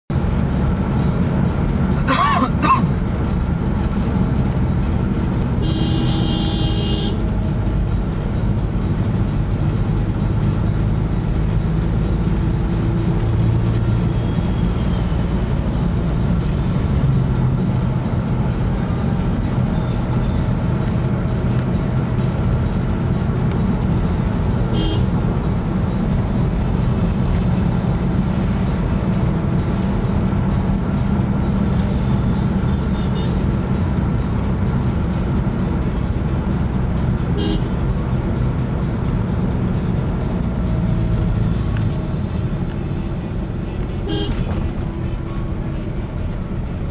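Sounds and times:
vehicle engine and road rumble: 0.1s - 46.9s
vehicle horn: 5.6s - 7.3s, 24.7s - 25.2s, 32.2s - 33.5s, 37.3s - 37.8s, 43.7s - 44.6s.

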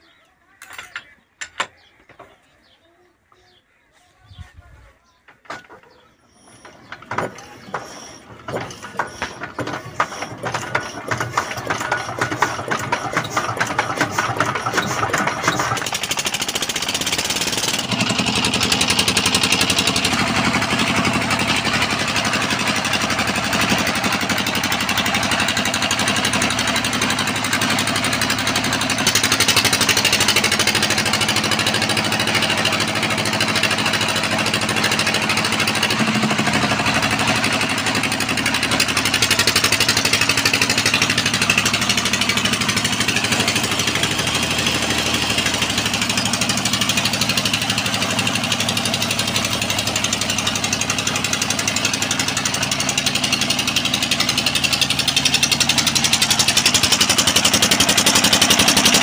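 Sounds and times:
diesel engine starting: 5.5s - 59.0s
flour mill grinding: 6.5s - 19.8s.

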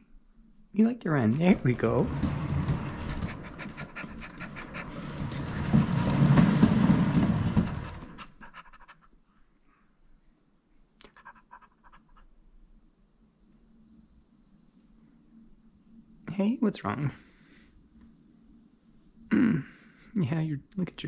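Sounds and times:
cat exercise wheel rumbling: 1.2s - 9.0s.

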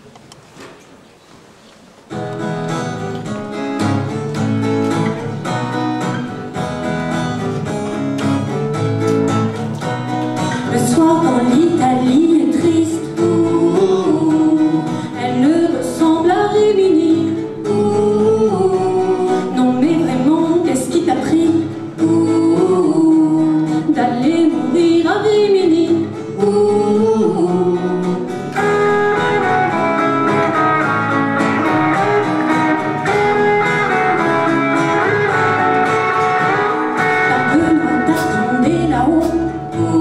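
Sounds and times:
pop-rock band playing: 2.4s - 15.2s, 26.0s - 40.0s
woman singing lead vocal: 10.6s - 29.3s, 36.4s - 40.0s.

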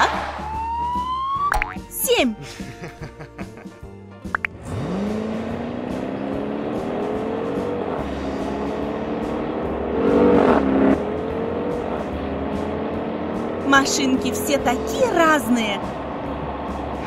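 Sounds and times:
car engine pulling away: 4.5s - 17.0s.

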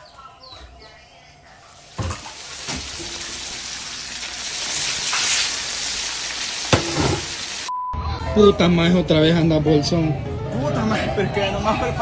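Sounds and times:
oil sizzling and spitting: 1.9s - 7.7s
food knocking into frying pan: 6.7s - 7.4s.

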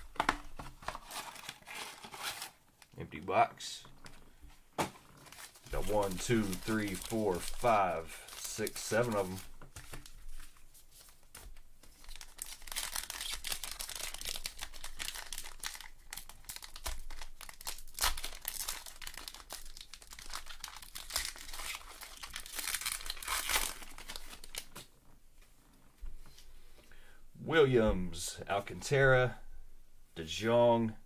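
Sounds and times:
wrappers crinkling: 0.9s - 3.0s, 5.1s - 24.9s
wrappers tearing: 1.0s - 2.6s, 5.2s - 9.4s, 11.9s - 24.8s.

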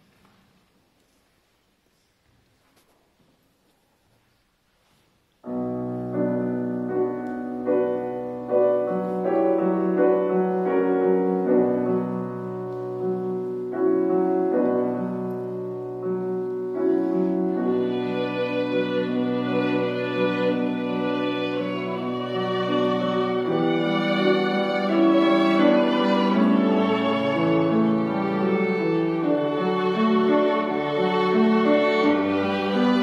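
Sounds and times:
grand piano playing: 5.4s - 33.0s
violins playing: 14.0s - 33.0s.

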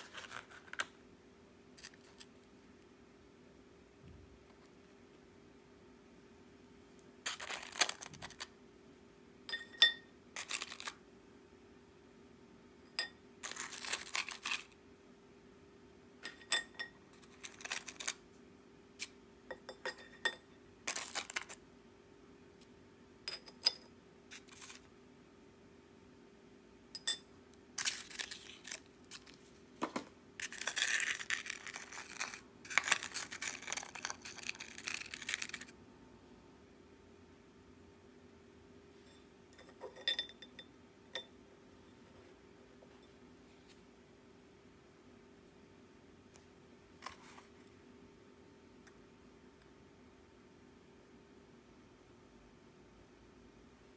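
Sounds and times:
crackers rustling in tray: 7.2s - 8.5s, 10.4s - 11.0s, 13.4s - 14.8s, 17.2s - 18.2s, 20.9s - 21.6s, 24.3s - 24.9s, 27.8s - 29.4s, 30.4s - 35.7s
crackers clicking on ceramic plate: 10.4s - 11.0s, 17.2s - 18.2s, 20.9s - 21.6s, 30.4s - 35.7s.

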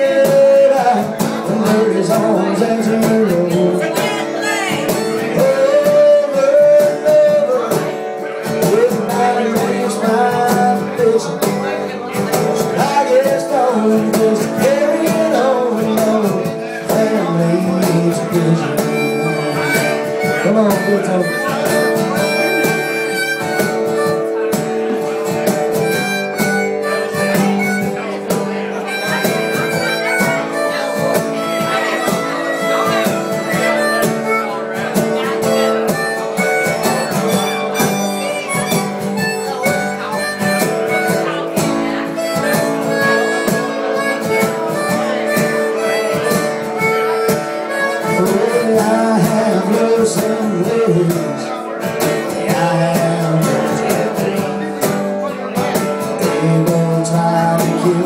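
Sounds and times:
cajon beat: 0.0s - 58.0s
guitar: 0.0s - 58.0s
harmonica solo: 18.2s - 49.8s.

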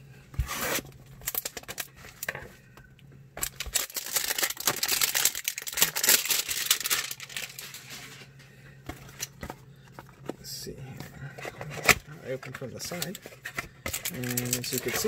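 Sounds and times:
cellophane crinkling: 0.4s - 2.4s, 3.4s - 8.2s, 11.4s - 15.0s.

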